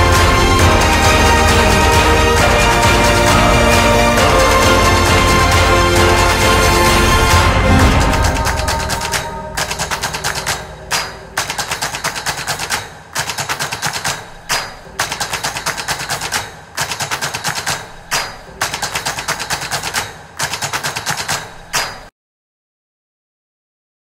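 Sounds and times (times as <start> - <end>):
rapid machine gun fire: 0.0 - 21.6.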